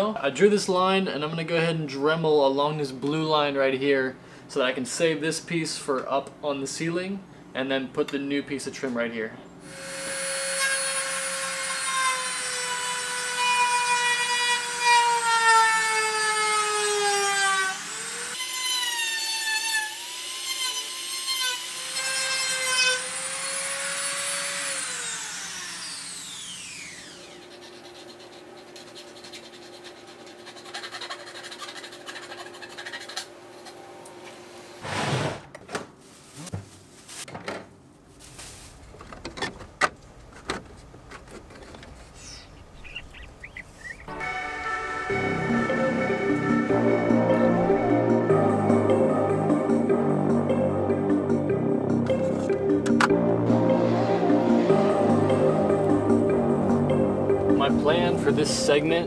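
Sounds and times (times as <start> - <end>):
rotary tool whining: 22.9 - 33.8.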